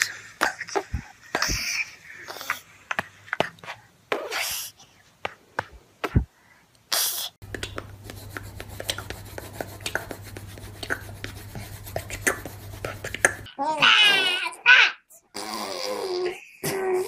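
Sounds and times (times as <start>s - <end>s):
toddler beatboxing: 0.0s - 6.3s, 6.9s - 14.4s
steady low hum: 7.4s - 13.5s.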